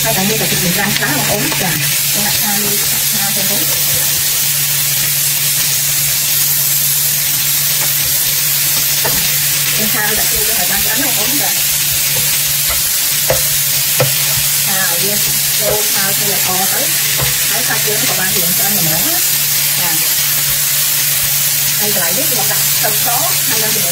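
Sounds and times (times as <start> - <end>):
food sizzling in a frying pan: 0.0 - 23.9
spatula scraping through food: 6.9 - 21.8
spatula tapping a pan: 7.4 - 23.9.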